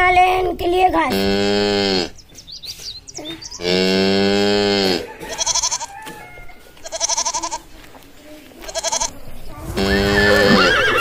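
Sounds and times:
short quavering bleats: 1.1s - 2.2s, 3.6s - 6.2s, 6.8s - 7.7s, 8.6s - 9.2s
cow mooing: 3.6s - 5.9s.

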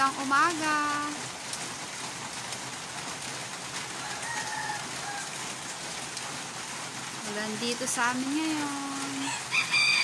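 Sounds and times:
steady rain: 0.0s - 10.0s
faint rooster crow: 3.9s - 5.4s, 9.2s - 10.0s.

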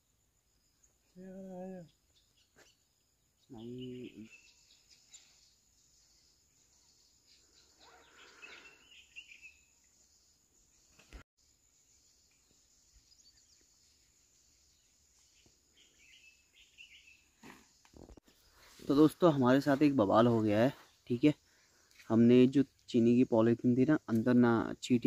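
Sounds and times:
faint bird chirps: 0.0s - 19.5s.

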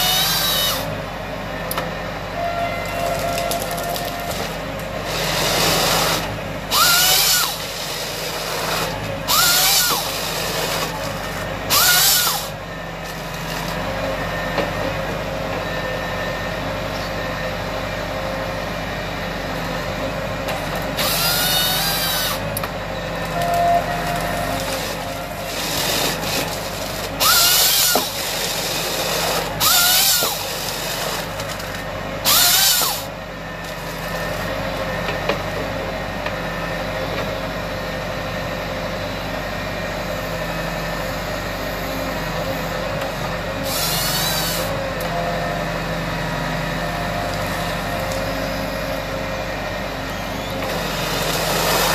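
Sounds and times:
chainsaw cutting whine: 0.0s - 1.0s, 2.9s - 14.5s, 20.8s - 34.5s, 40.3s - 51.9s
tractor diesel engine running: 0.0s - 51.9s.

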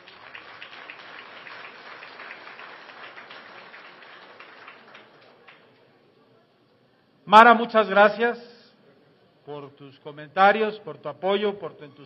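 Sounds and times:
audience applause: 0.0s - 5.8s.

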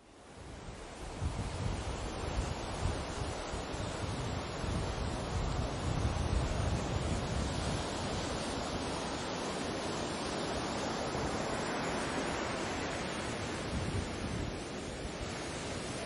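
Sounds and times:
wind rumble on microphone: 0.2s - 16.0s
sea surf rushing: 0.5s - 16.0s.

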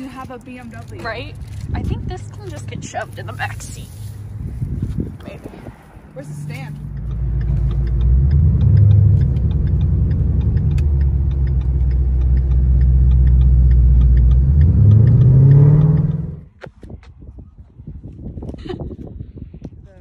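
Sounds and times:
car engine droning: 0.8s - 16.5s
fast regular ticking: 6.2s - 16.4s.

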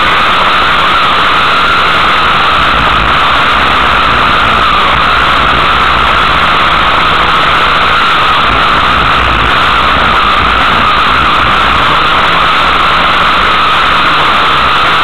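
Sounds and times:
racing vehicle engine: 0.0s - 15.0s.

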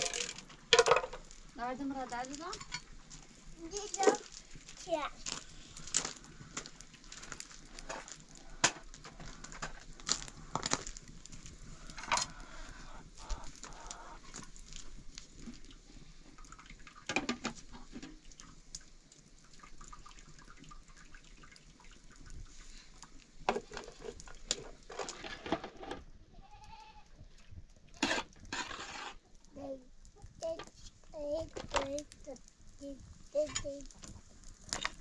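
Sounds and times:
goat bleating: 26.4s - 27.1s.

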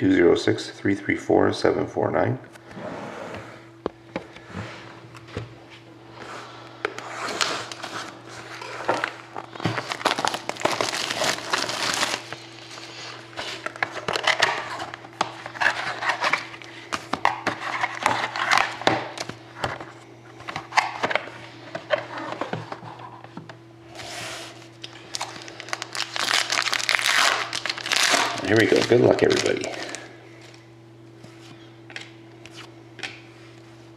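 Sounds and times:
faint steady hum: 0.0s - 33.9s
cardboard and plastic wrapping rustling: 7.2s - 19.9s, 24.0s - 30.6s.

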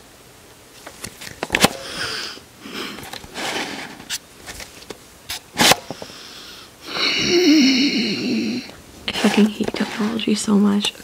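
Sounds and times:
breathy huffs: 1.8s - 3.1s, 5.8s - 9.2s.

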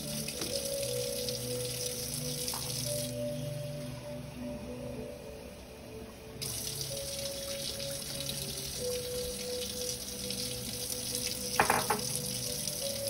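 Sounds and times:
soft background music: 0.0s - 13.0s
chicken sizzling in a hot pan: 6.4s - 13.0s
metal clank: 11.6s - 12.1s.

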